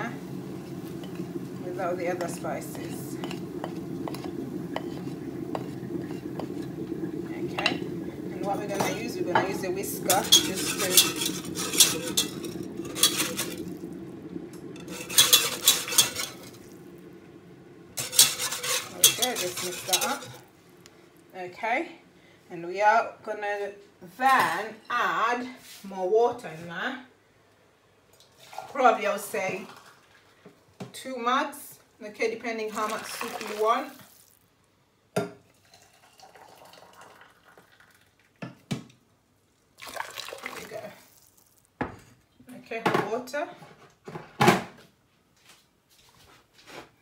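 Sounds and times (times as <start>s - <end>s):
faint hiss of water: 0.0s - 22.6s, 28.2s - 34.8s, 39.4s - 42.7s
wire whisk clinking in a pot: 8.5s - 13.7s, 14.8s - 16.6s, 18.0s - 20.4s.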